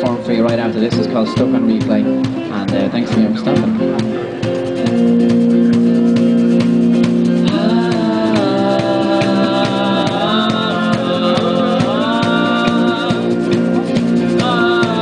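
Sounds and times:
electric bass line: 0.0s - 15.0s
strummed acoustic guitars: 0.0s - 15.0s
wordless vocal: 7.3s - 15.0s.

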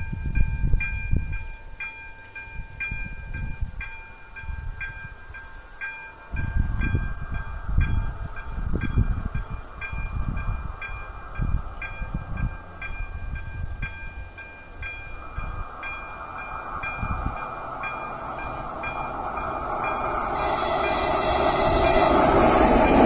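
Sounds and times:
approaching train: 0.0s - 23.0s
level crossing warning bell dinging: 0.0s - 23.0s
low rumbles: 12.1s - 23.0s.

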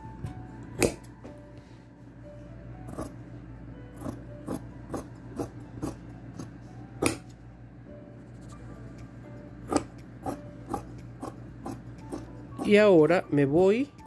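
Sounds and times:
scissors snipping fabric: 4.0s - 7.3s, 9.7s - 12.3s.

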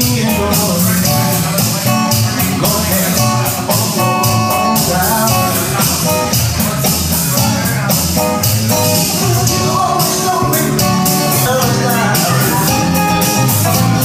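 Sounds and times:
live rock band playing: 0.0s - 14.0s.

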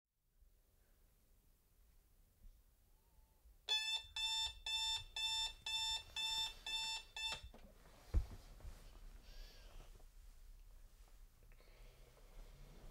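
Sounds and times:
alarm clock beeping: 3.7s - 7.5s.

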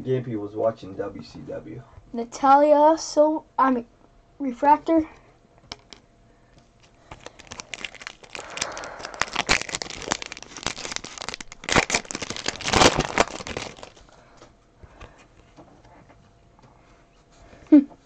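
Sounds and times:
plastic wrapper tearing and crinkling: 6.8s - 14.1s.

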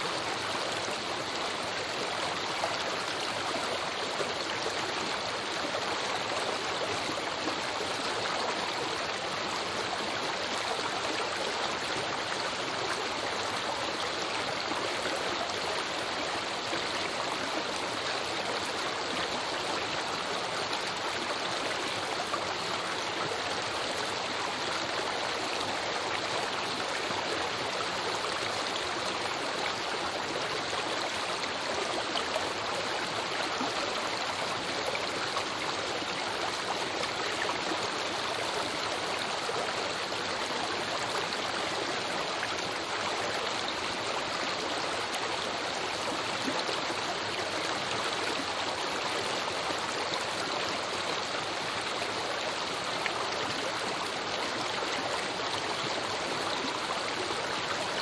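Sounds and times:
creek rushing and babbling: 0.0s - 58.0s.

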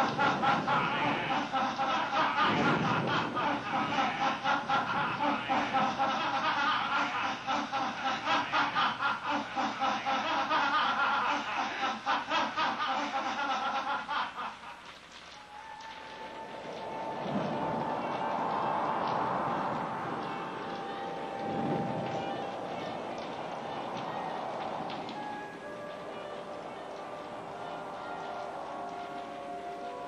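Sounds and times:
person laughing: 0.0s - 14.6s.

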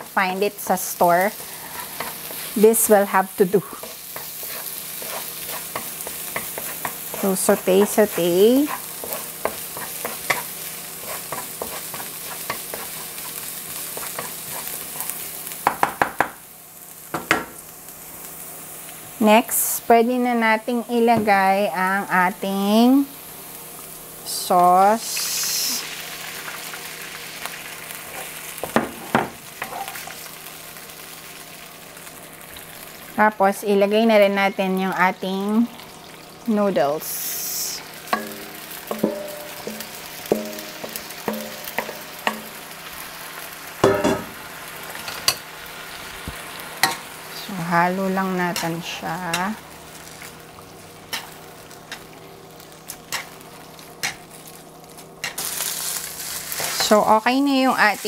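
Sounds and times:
sauce sizzling in wok: 0.0s - 58.0s
wooden spatula stirring: 3.8s - 10.4s.

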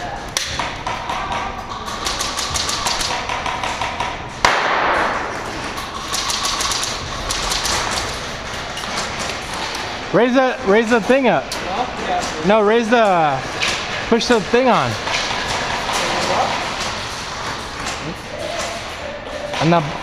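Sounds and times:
airsoft guns firing: 0.5s - 9.7s.

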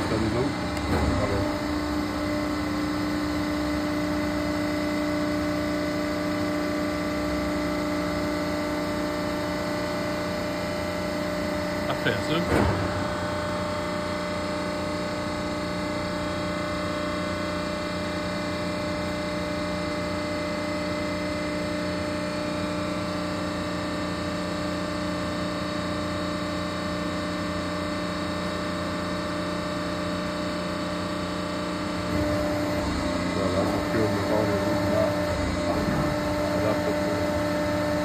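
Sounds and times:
machine hum: 0.0s - 38.0s.

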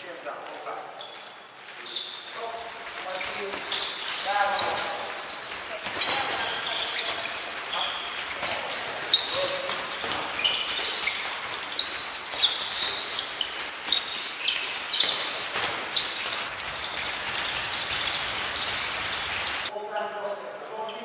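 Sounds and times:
sports shoes squeaking on floor: 0.6s - 21.0s
feet landing knocks: 2.9s - 19.7s.

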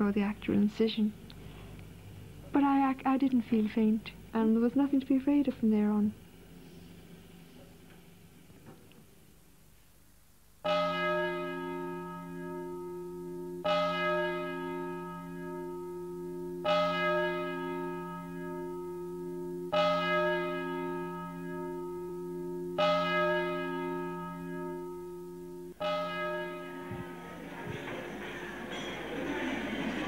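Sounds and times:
large bell tolling: 10.7s - 30.0s.

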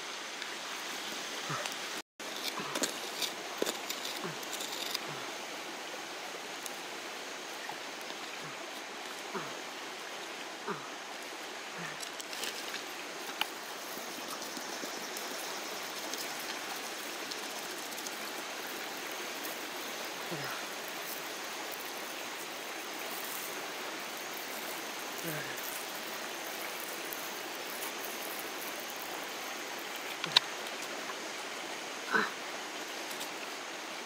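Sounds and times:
faint scrapes and taps on soil: 2.3s - 5.0s.

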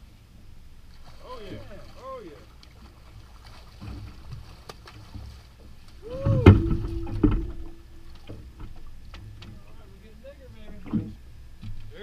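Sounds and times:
water splashing: 0.8s - 12.0s
heavy knocks against boat: 3.8s - 9.6s.

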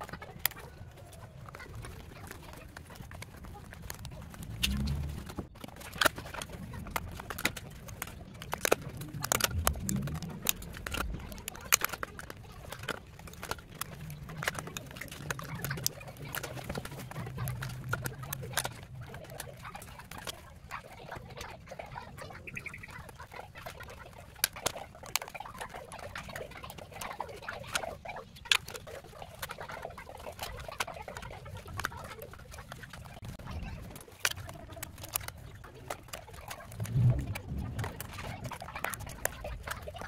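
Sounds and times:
plastic snapping: 0.0s - 21.6s, 22.6s - 40.0s
plastic clicking and scraping: 0.0s - 40.0s.

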